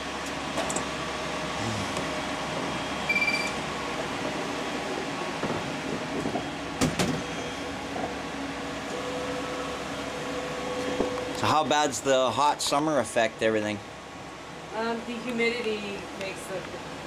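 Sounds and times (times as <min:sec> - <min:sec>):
printer cooling fans whirring: 0:00.0 - 0:17.0
short beep: 0:03.0 - 0:03.6.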